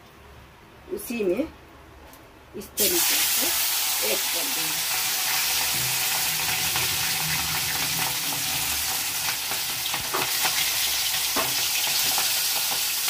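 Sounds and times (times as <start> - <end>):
fish frying in hot oil: 2.8 - 13.0
oil crackles and pops: 7.8 - 13.0.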